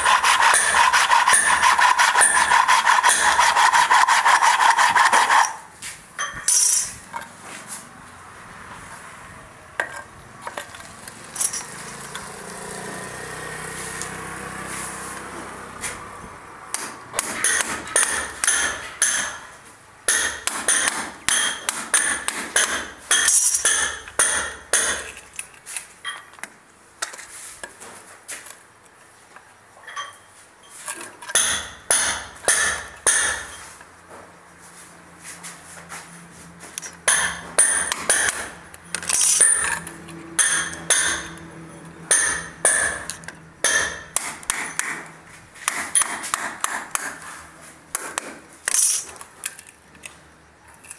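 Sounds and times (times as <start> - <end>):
hammer tapping metal: 0.0 - 3.6, 16.7 - 19.5, 20.1 - 25.2, 31.3 - 33.6, 37.0 - 38.6, 39.2 - 47.2.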